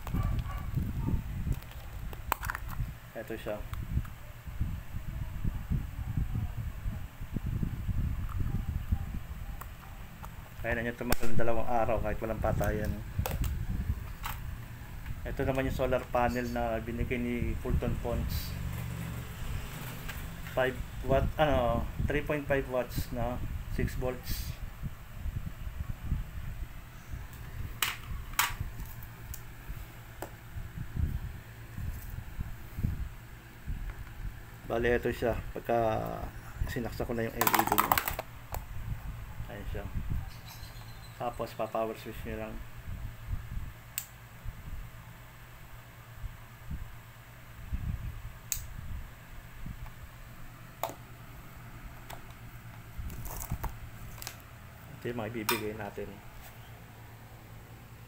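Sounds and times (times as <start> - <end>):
phone handling rumble: 37.3 - 38.6.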